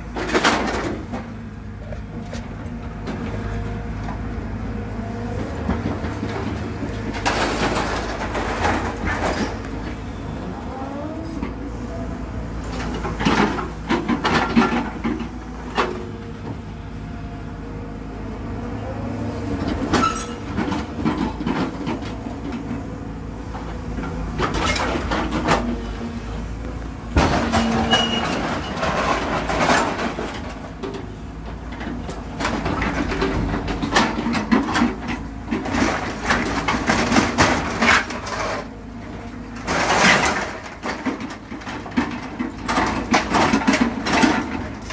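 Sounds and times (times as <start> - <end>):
machine engine and hydraulics: 0.0 - 44.9
scrap metal clanking and crashing: 0.1 - 1.3, 5.6 - 10.0, 12.5 - 16.1, 19.6 - 25.9, 27.0 - 44.9.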